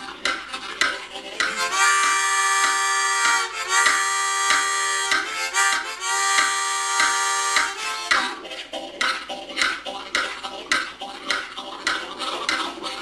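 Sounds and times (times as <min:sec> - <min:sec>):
harmonica chugging puffs: 0:00.0 - 0:13.0
harmonica whistle chords: 0:01.4 - 0:08.4.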